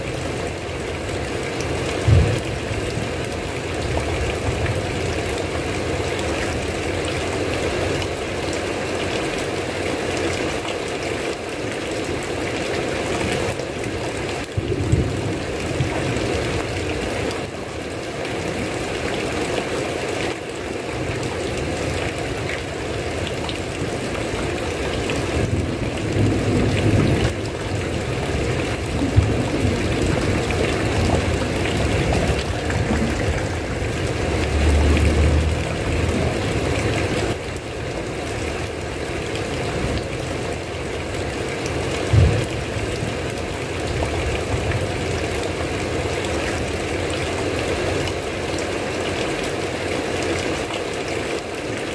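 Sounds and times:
rain hissing: 0.0s - 50.6s
low rumbles: 28.6s - 37.4s.

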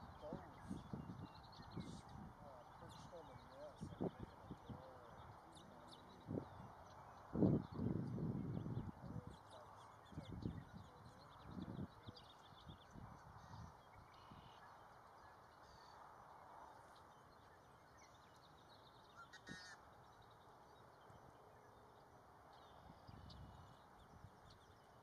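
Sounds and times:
brief bird call: 19.2s - 19.8s.

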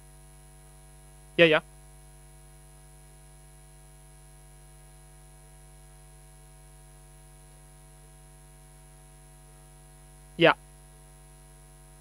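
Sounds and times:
faint electrical mains hum: 0.0s - 12.0s.

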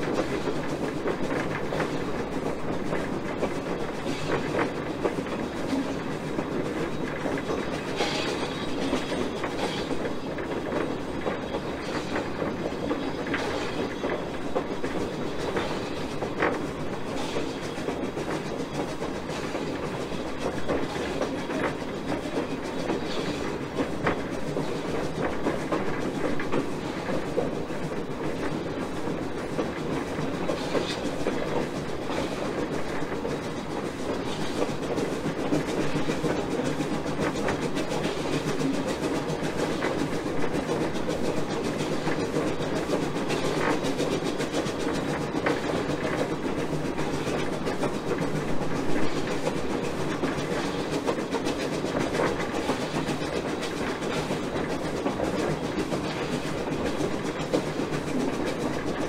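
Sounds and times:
wheels clicking over rail joints: 0.0s - 59.0s
wheels rumbling on rail: 0.0s - 59.0s.

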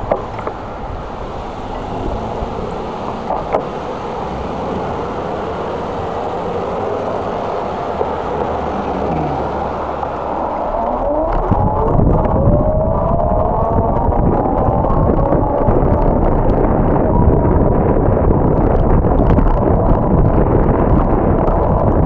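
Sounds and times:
car passing by: 0.0s - 11.8s
rising whine: 0.0s - 22.0s
wind buffeting microphone: 0.0s - 22.0s.

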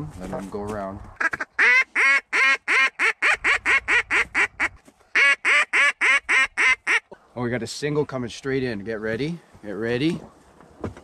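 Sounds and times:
duck call quacks: 1.2s - 7.2s.

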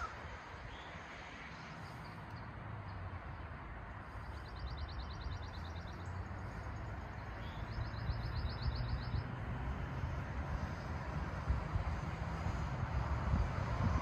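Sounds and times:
distant road traffic rumble: 0.0s - 14.0s
songbird trilling: 7.4s - 9.3s.

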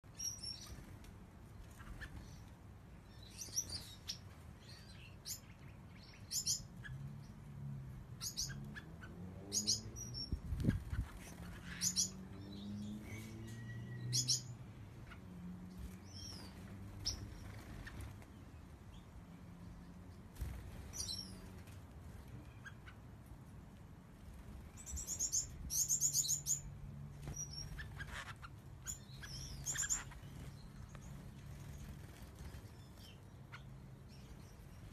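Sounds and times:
finches chirping: 1.6s - 7.4s, 8.2s - 18.2s, 20.1s - 21.6s, 24.7s - 34.9s
faint low hum: 23.1s - 34.9s.

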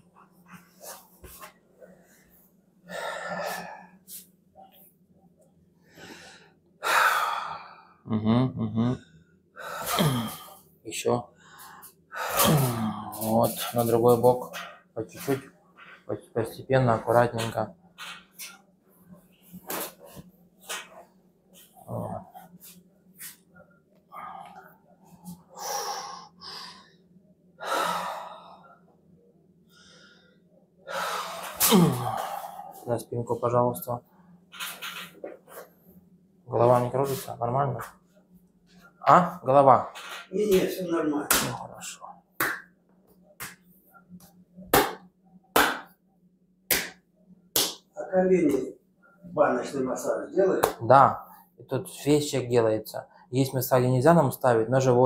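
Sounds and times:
person breathing heavily: 1.8s - 4.3s, 5.8s - 8.0s, 24.1s - 28.9s, 29.7s - 32.9s
man breathing hard: 2.9s - 4.2s, 5.8s - 8.0s, 27.6s - 28.9s
man grunting: 9.9s - 10.4s, 12.3s - 13.2s, 31.6s - 32.5s.

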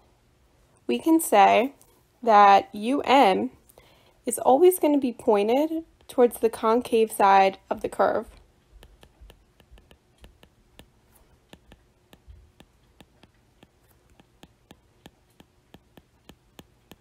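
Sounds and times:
stylus clicking while writing: 8.3s - 17.0s.

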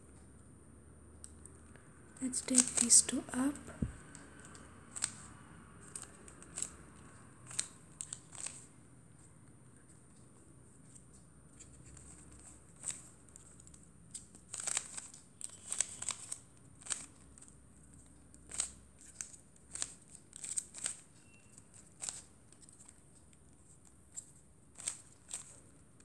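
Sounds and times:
puzzle cube clicking: 2.3s - 8.7s, 11.6s - 22.9s, 24.2s - 25.6s.

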